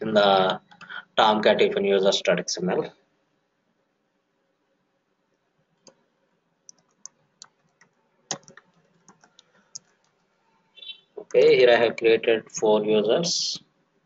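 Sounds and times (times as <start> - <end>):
computer keyboard key clicks: 6.7 - 9.9.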